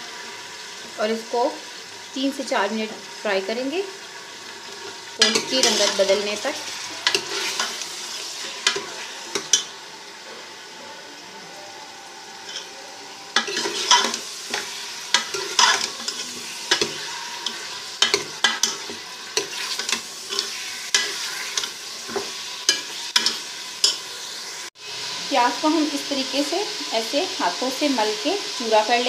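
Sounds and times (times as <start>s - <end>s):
meat sizzling in hot fat: 0.0s - 29.0s
spoon scraping and knocking pot: 13.4s - 24.0s.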